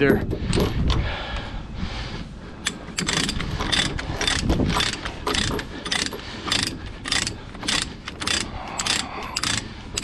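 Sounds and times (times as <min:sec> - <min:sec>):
ratchet pawl clicking: 0:02.6 - 0:10.0.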